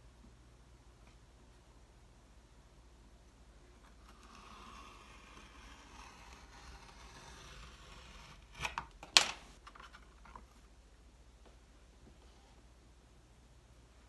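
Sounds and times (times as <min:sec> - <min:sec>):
knife scraping through clay: 0:03.9 - 0:08.8.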